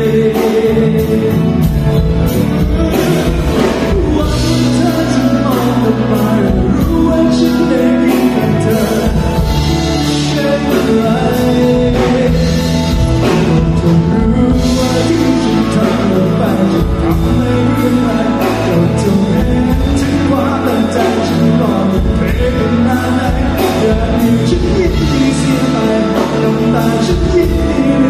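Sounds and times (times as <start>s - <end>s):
live rock band playing: 0.0s - 28.0s
man singing: 0.0s - 28.0s.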